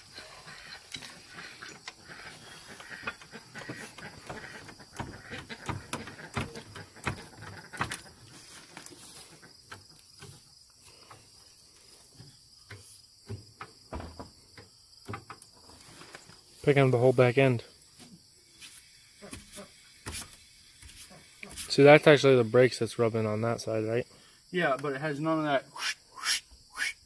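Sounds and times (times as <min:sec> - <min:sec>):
insects trilling: 0:00.0 - 0:27.0
floor jack clicks and knocks: 0:02.9 - 0:08.1.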